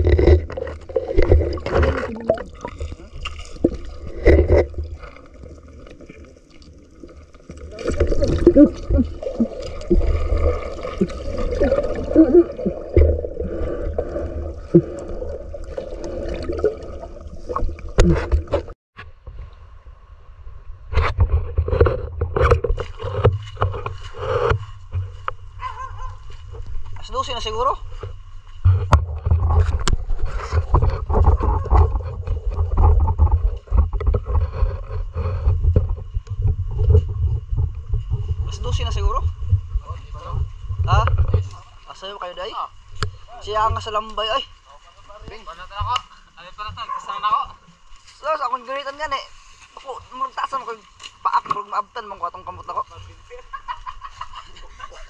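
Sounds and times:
bubbling gurgles: 0.0 - 18.8
underwater rumble: 0.0 - 25.6, 27.8 - 41.9
low rumble on microphone: 27.8 - 41.7.

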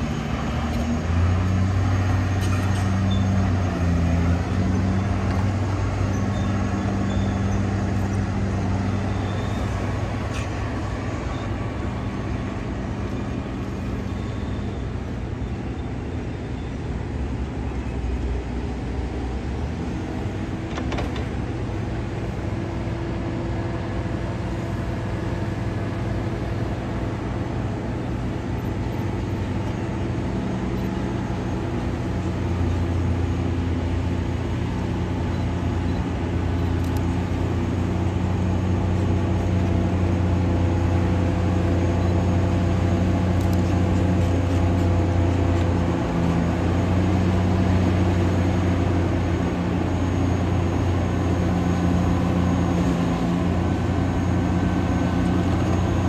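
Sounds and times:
bulldozer diesel engine running: 0.0 - 56.0.

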